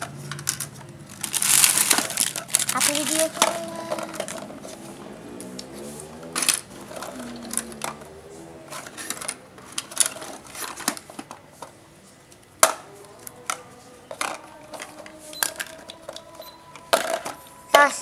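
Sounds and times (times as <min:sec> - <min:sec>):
short electronic beeps: 0:16.4 - 0:16.6.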